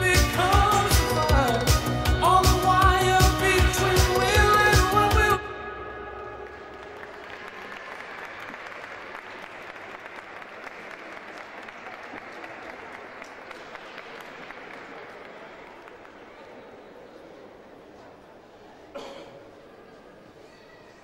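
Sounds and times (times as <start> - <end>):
audience applauding: 6.4 - 16.6.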